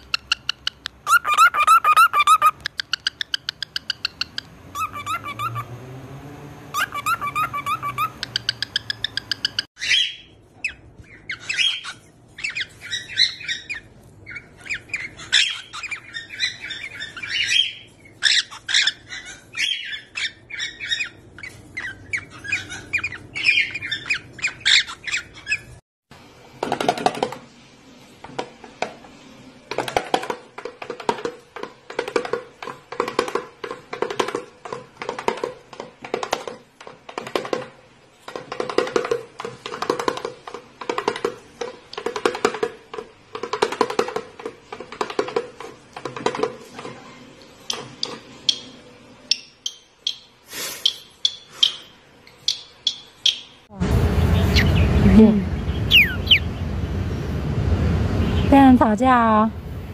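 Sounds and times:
cockatiels squawking chirps: 0.0 - 5.6, 6.7 - 25.7, 55.6 - 56.5.

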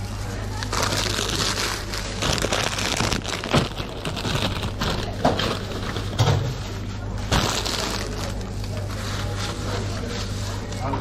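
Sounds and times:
plastic chip bag crinkling: 0.4 - 6.2, 7.3 - 9.4.

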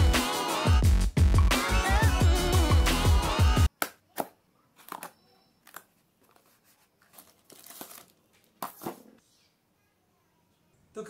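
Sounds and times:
cardboard tearing and crinkling: 6.3 - 8.9.

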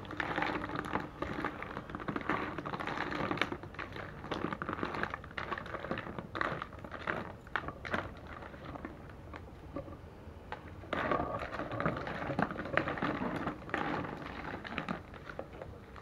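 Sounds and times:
snail shells clattering in plastic basin: 0.0 - 9.4.

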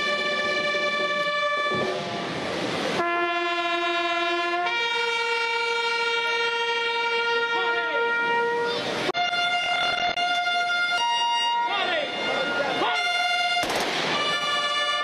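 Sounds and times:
bugle playing long notes: 0.0 - 2.0, 3.0 - 15.0
rush of noise: 1.7 - 3.0.

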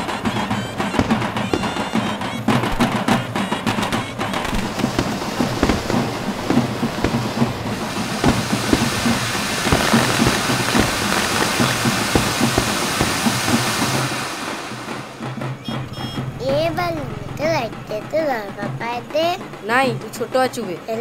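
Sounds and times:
fireworks hissing and crackling: 0.0 - 15.5
band music with drums: 0.0 - 21.0.

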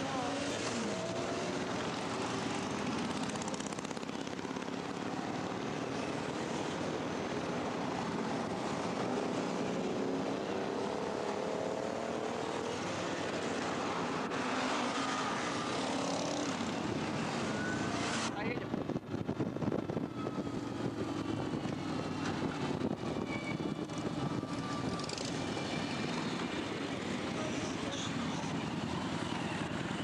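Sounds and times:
wind rush: 16.8 - 27.3.

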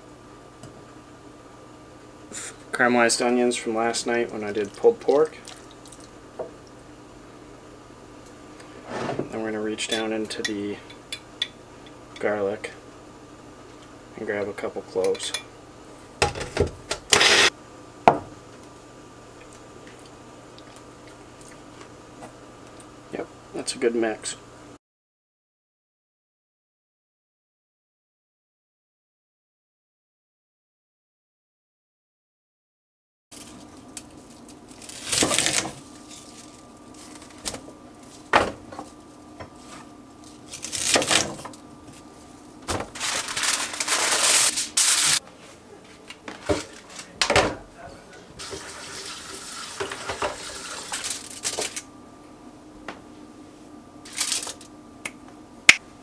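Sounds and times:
aluminium foil crinkling: 33.4 - 38.3, 40.2 - 45.2, 50.6 - 51.8, 54.1 - 54.7.

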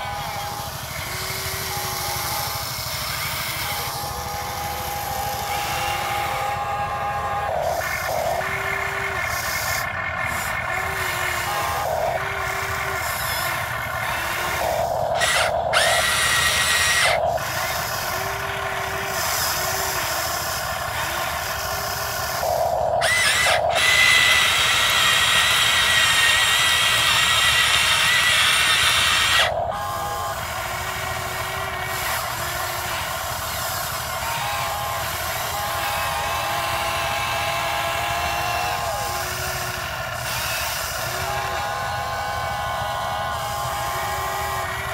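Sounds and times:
electric motors whining: 0.0 - 44.9.

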